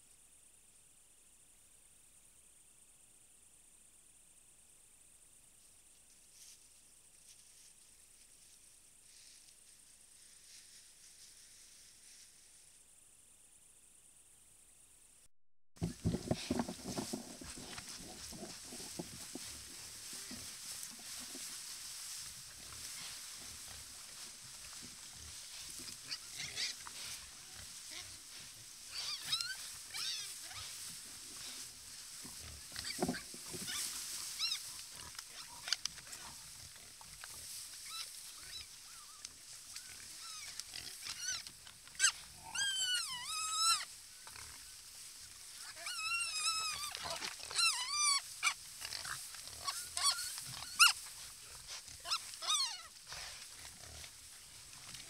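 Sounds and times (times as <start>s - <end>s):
wild boars squealing: 16.0s - 54.1s.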